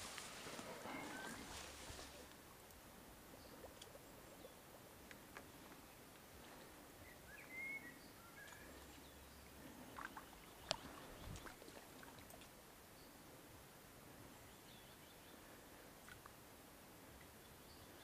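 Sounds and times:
soft clicks and ticks: 10.0 - 10.9.

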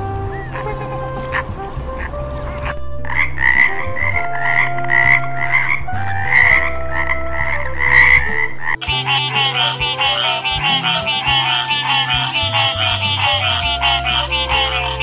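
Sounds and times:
steady low hum: 0.0 - 15.0
frogs croaking: 2.0 - 15.0.

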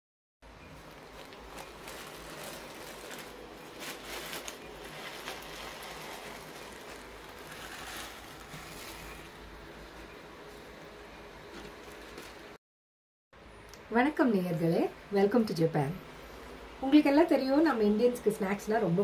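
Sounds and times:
plastic snack bag crinkling: 0.6 - 9.6.

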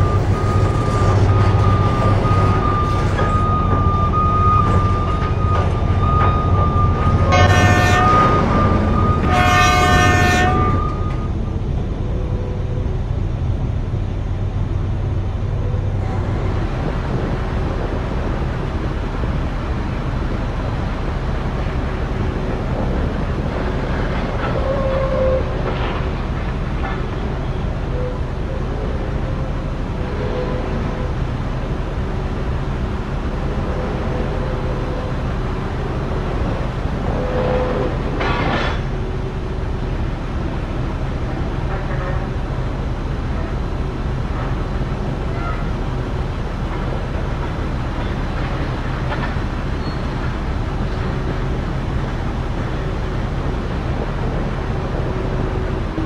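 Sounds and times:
reversing alarm beeping: 0.0 - 11.4
diesel engine drone: 0.0 - 56.0
horn blasts: 6.0 - 11.3.

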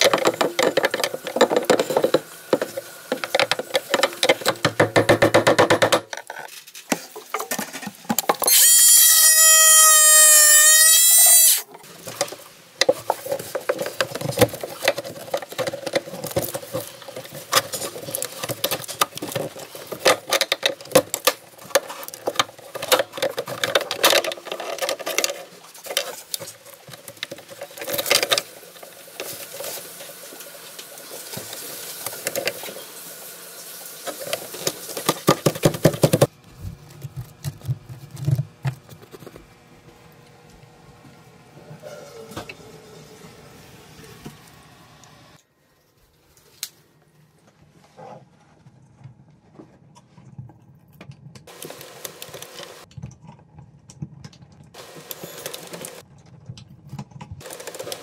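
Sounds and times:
tool scraping plastic: 0.0 - 11.6
loud squeal: 8.4 - 11.6.

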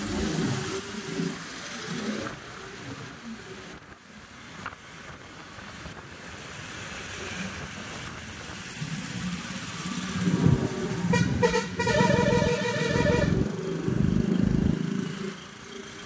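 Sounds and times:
motorcycle and car engines: 0.0 - 16.0
wind on microphone: 7.3 - 14.8.

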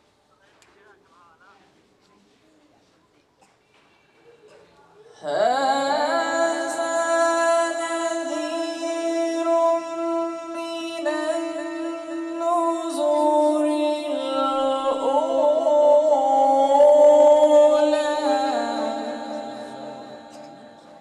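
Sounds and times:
man reciting melodically: 5.2 - 21.0.

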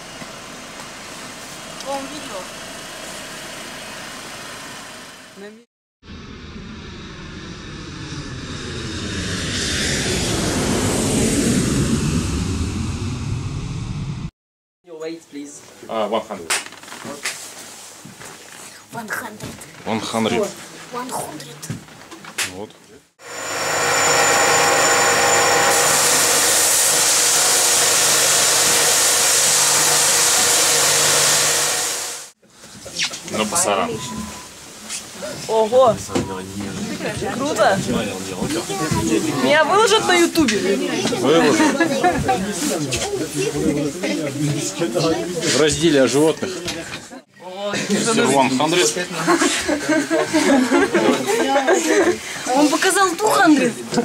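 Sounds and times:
engine noise with rushing hiss: 6.1 - 14.3, 23.2 - 32.4.

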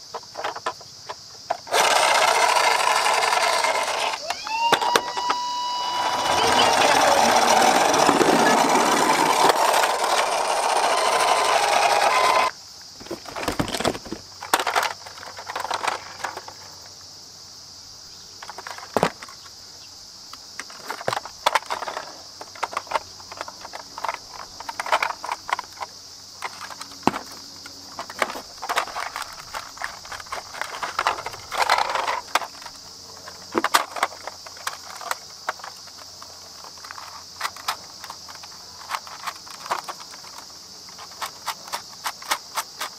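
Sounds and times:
steady high hiss: 0.0 - 42.9
plastic toy clicking and rattling: 1.5 - 4.2, 6.0 - 16.6, 20.6 - 42.9
loud dense noise: 4.0 - 12.5.

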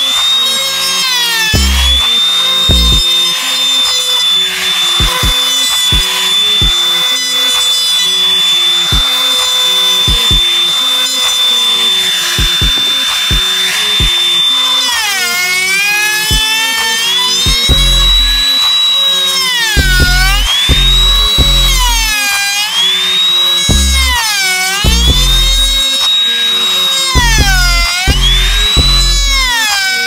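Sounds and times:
trim router whining: 0.0 - 30.0
background music with a beat: 1.4 - 3.2, 5.0 - 7.0, 8.8 - 11.4, 12.2 - 14.3, 16.2 - 22.6, 23.5 - 26.3, 27.0 - 30.0.

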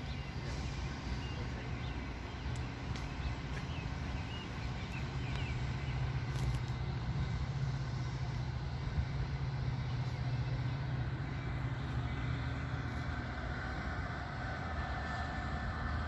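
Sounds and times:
diesel locomotive engine humming: 0.0 - 16.0.

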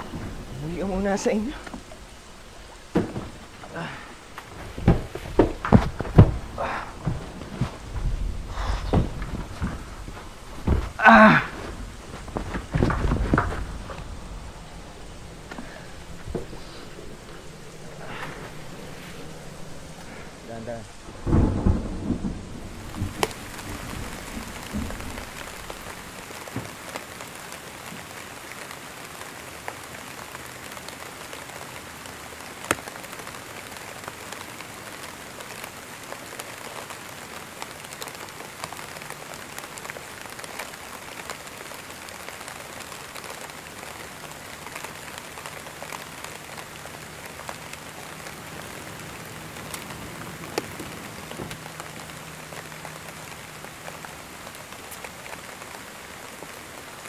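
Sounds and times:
thunder rumble: 0.0 - 27.0, 41.5 - 56.1
steady rain: 0.0 - 57.0.

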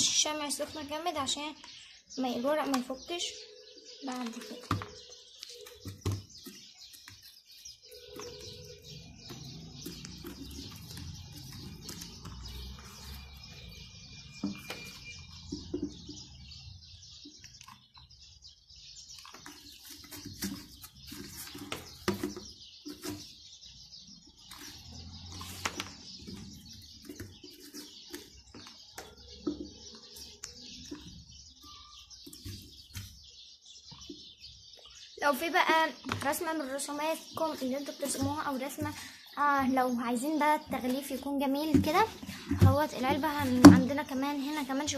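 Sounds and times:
constant high chirping: 0.0 - 44.9
soft knocks taps and rustles: 14.4 - 16.2, 19.2 - 23.4.

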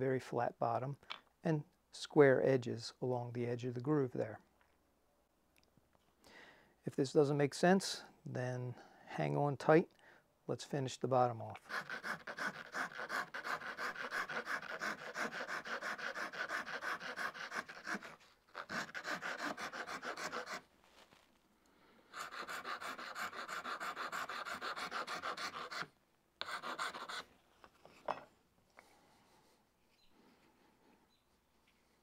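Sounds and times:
wood rasp filing wood: 11.6 - 20.7, 22.1 - 27.2.

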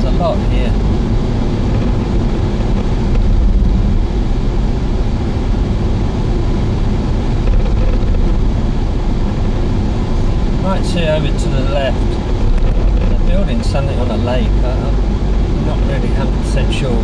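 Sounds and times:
car road and engine rumble: 0.0 - 17.0.

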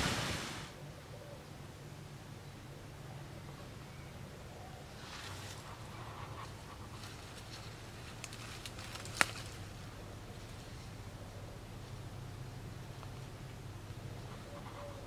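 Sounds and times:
leaves rustling: 0.0 - 0.8, 4.8 - 15.0
stem snapping: 8.2 - 9.6.

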